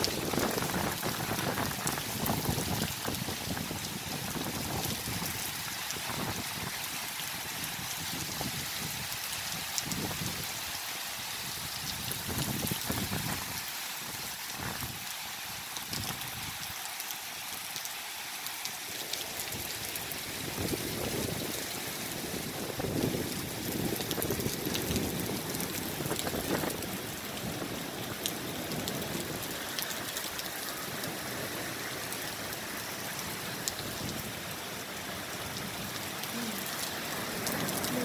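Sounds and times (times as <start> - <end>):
wind rumbling on microphone: 0.0 - 10.6, 11.4 - 15.0, 19.4 - 34.7
heavy rain pouring: 0.0 - 38.0.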